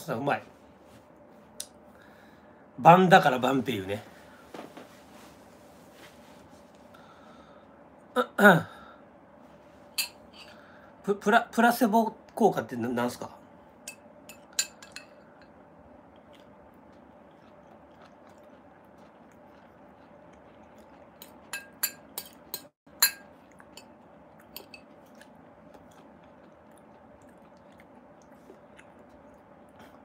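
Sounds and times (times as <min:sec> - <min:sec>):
faint steady hum: 0:00.0 - 0:30.0
fork clinking against plate: 0:13.9 - 0:15.2, 0:21.5 - 0:23.9
quiet chewing: 0:15.4 - 0:30.0.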